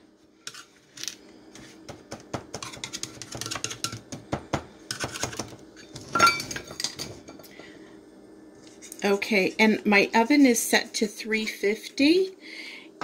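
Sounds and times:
metal cup tamping crumb crust: 2.5 - 4.1.

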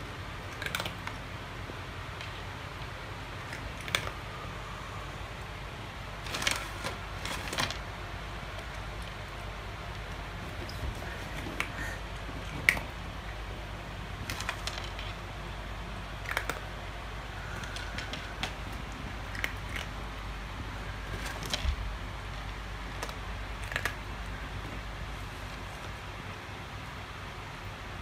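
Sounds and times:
cat crunching dry kibble: 0.1 - 4.9, 6.1 - 27.0.

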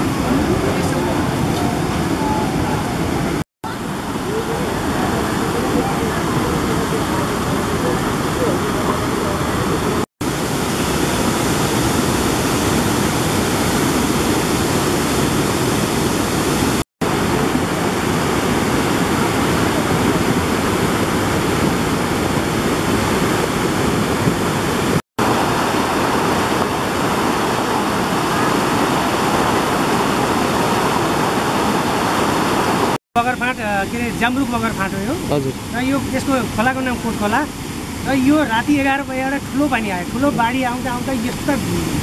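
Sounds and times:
river rushing over boulders: 0.0 - 42.0.

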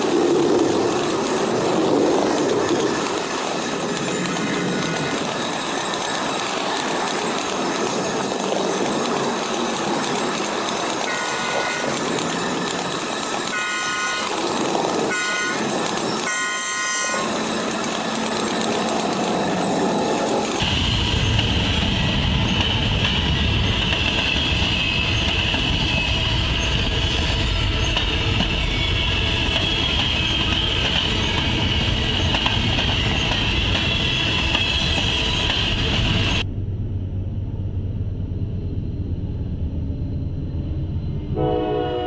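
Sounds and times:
diesel train low rumble: 0.0 - 42.0
train wheels rumbling on rail: 0.0 - 42.0
high wheel squeal: 2.8 - 8.8, 10.0 - 20.6, 24.2 - 36.4.

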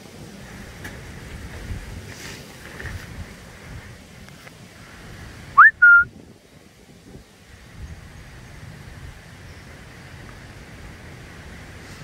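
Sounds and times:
wind rumble on microphone: 0.0 - 12.0
loud whistles: 5.6 - 6.1.

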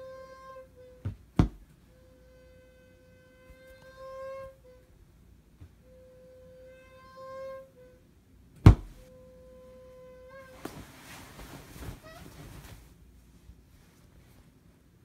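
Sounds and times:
sharp thump: 8.6 - 9.0.

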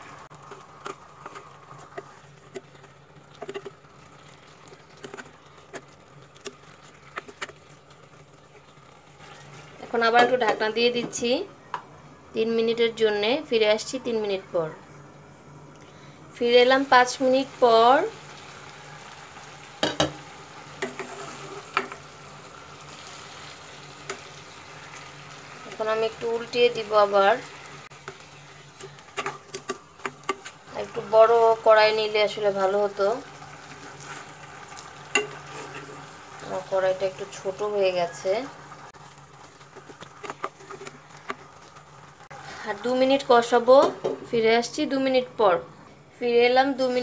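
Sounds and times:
fish frying in a wok: 0.0 - 10.4, 16.8 - 43.9
spatula scraping a pan: 20.8 - 22.0, 33.6 - 36.4, 39.0 - 42.9.

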